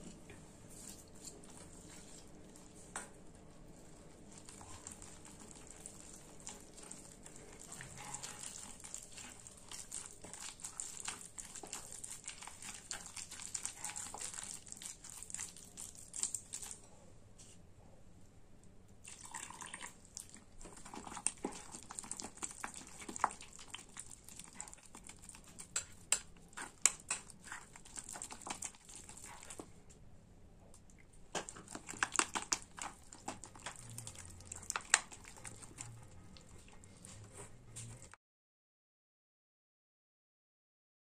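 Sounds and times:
spoon scraping glass bowl: 7.7 - 9.4
water poured into glass bowl: 19.0 - 20.0.

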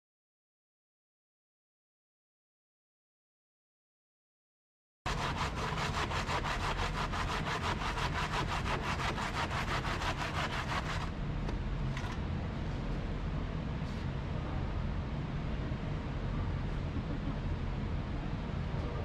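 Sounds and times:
handsaw cutting block: 5.1 - 11.1
low steady hum: 5.1 - 19.0.

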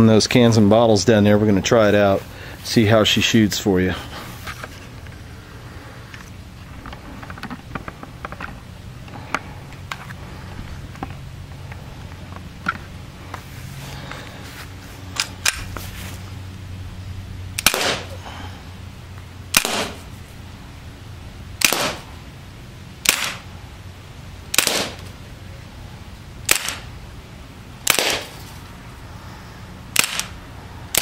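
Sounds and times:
air pistol firing pops: 17.6 - 18.1, 19.5 - 20.0, 21.6 - 22.0, 23.0 - 23.4, 24.5 - 25.1, 26.5 - 26.9, 27.9 - 28.4, 30.0 - 31.0.

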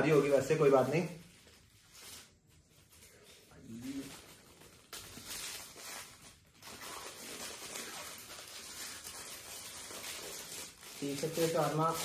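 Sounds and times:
paper and plastic wrapper crinkling: 0.0 - 12.0.

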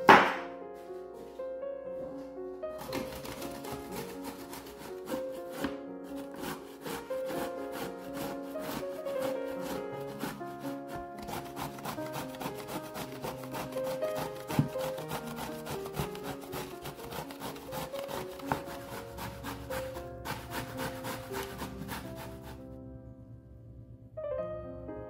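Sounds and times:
sharp knocks: 0.0 - 0.5
piano music: 0.0 - 25.0
grating on metal grater: 2.8 - 22.6.

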